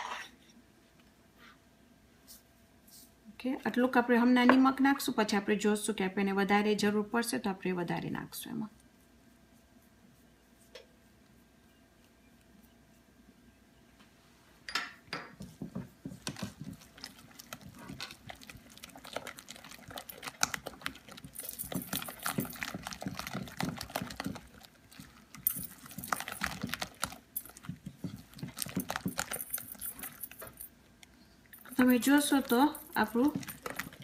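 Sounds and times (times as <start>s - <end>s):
whisk beating batter in glass bowl: 15.4s - 29.7s.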